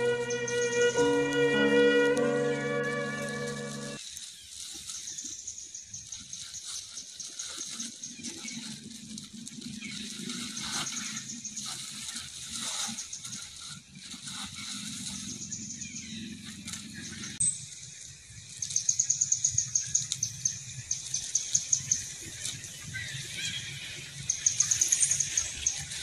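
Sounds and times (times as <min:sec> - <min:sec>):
background music: 0:00.0 - 0:04.0
soft rustling: 0:02.1 - 0:17.0.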